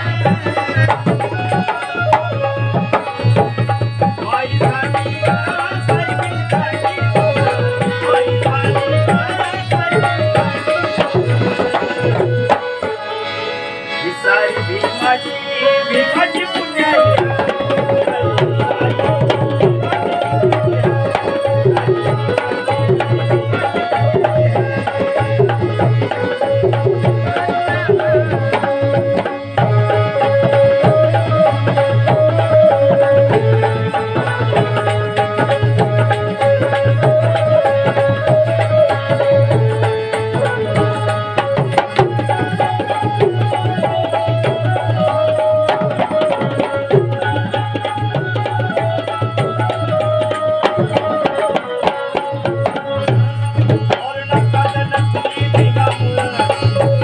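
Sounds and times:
hand drum rhythm: 0.0s - 13.0s, 16.4s - 57.0s
harmonium melody: 0.0s - 57.0s.

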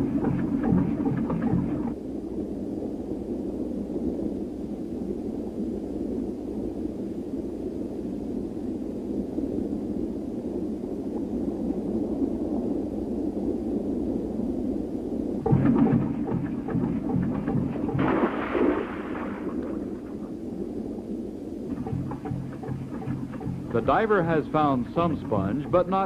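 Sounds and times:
muffled underwater rushing: 0.0s - 2.0s, 15.4s - 26.0s
rhythmic pulsing sound: 0.0s - 2.0s, 15.4s - 18.6s, 21.7s - 26.0s.

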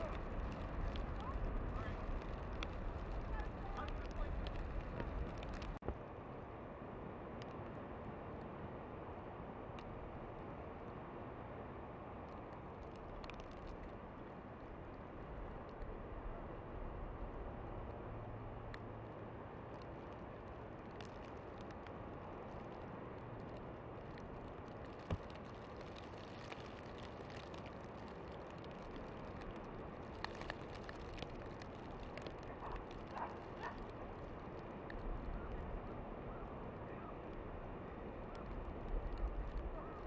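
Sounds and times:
light ticks: 0.0s - 5.9s, 9.7s - 10.0s, 12.2s - 14.0s, 18.7s - 18.9s, 19.6s - 35.9s, 38.2s - 40.0s.

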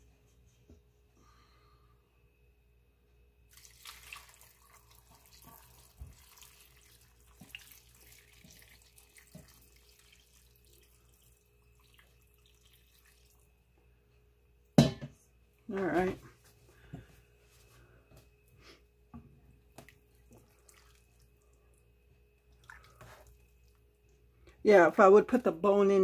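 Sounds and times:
broth pouring and splashing: 3.5s - 13.5s, 19.8s - 21.8s, 22.5s - 23.8s.

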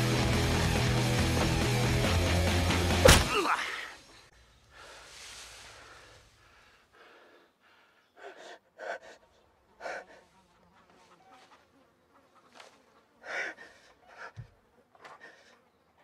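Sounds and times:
person breathing heavily: 3.7s - 10.4s, 13.2s - 14.4s.

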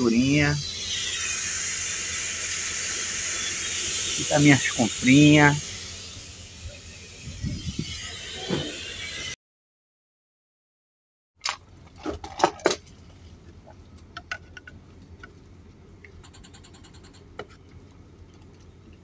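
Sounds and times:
low steady hum: 11.5s - 16.3s.

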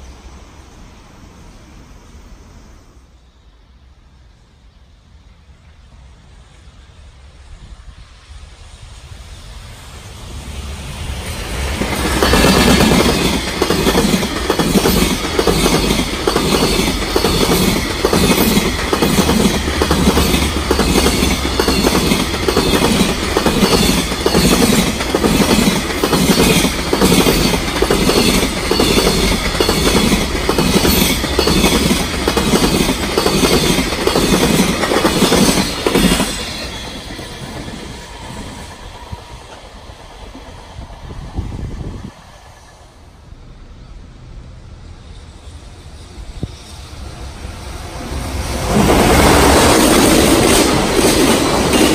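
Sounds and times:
low train rumble: 0.0s - 51.9s
train wheels clattering on rails: 11.1s - 42.9s, 46.3s - 51.9s.

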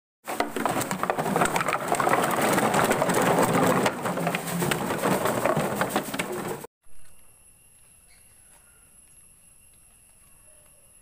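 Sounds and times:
plastic bottles clattering on concrete: 0.3s - 6.7s.

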